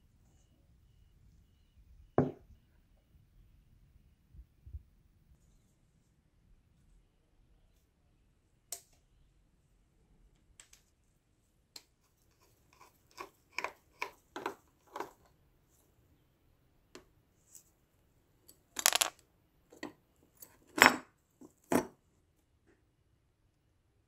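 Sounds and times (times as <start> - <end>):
small metal parts clicking: 18.8 - 19.2.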